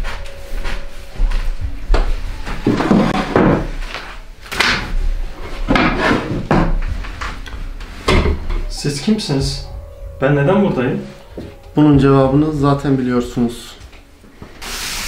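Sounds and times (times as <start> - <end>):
footsteps: 0.0 - 14.6
door banging: 4.6 - 12.9.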